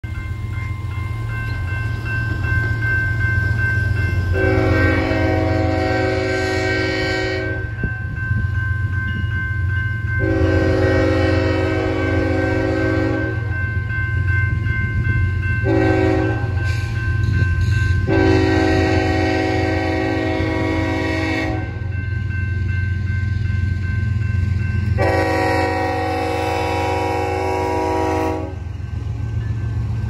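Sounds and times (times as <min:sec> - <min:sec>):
crossing warning bell ringing: 0:00.0 - 0:30.0
locomotive horn blasts: 0:04.3 - 0:07.8, 0:10.2 - 0:13.5, 0:15.6 - 0:16.6, 0:18.0 - 0:21.9, 0:25.0 - 0:28.7.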